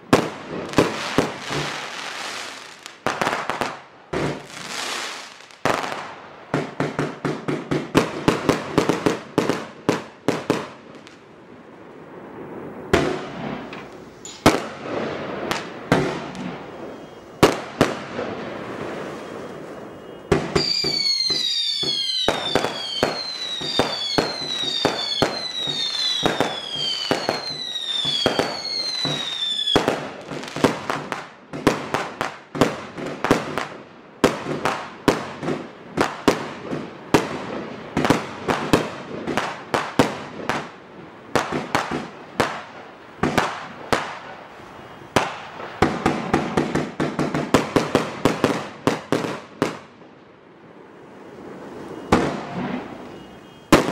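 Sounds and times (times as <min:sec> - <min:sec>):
firework shots and bursts: 0:00.0 - 0:11.2, 0:12.4 - 0:50.0, 0:51.6 - 0:53.9
firework launch bangs: 0:12.9 - 0:31.1
firework whistles falling in pitch: 0:15.5 - 0:30.1, 0:51.6 - 0:53.9.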